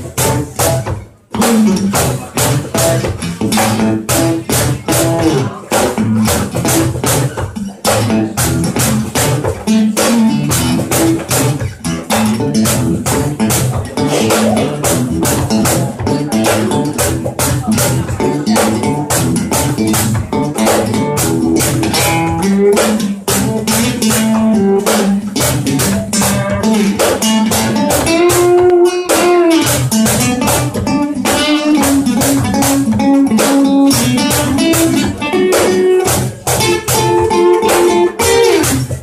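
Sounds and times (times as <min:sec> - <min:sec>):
acoustic guitar strumming: 0:00.0 - 0:39.0.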